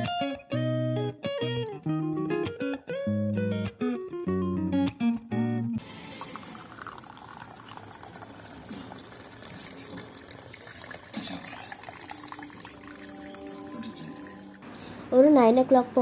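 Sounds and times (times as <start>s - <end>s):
tea pouring into ceramic cup: 5.8s - 14.7s.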